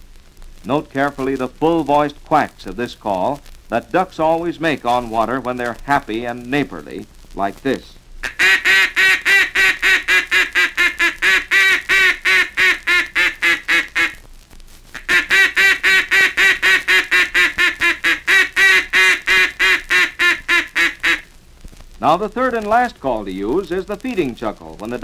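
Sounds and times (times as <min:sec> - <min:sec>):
duck call quacking: 0:08.2 - 0:14.2, 0:14.9 - 0:21.3.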